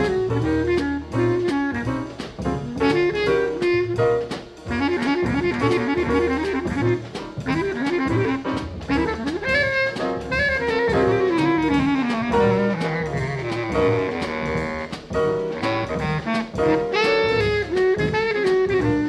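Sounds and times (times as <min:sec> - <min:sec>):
jazz drums: 0:00.0 - 0:19.0
horn playing fast notes: 0:02.7 - 0:19.0.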